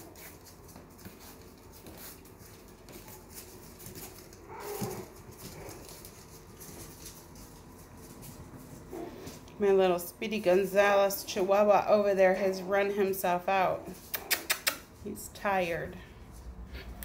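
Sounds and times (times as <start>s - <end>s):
puppy claws ticking on hard floor: 0.1s - 9.4s
puppy cry: 4.5s - 5.8s.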